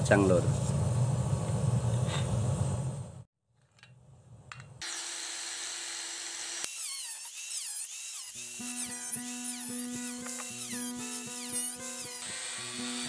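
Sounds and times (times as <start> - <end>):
power tool whining: 4.8 - 13.0.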